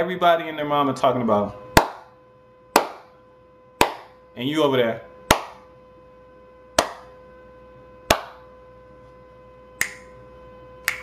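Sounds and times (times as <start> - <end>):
hand claps: 3.8 - 4.1, 5.3 - 5.6, 6.8 - 7.0, 8.1 - 8.4, 9.8 - 10.1.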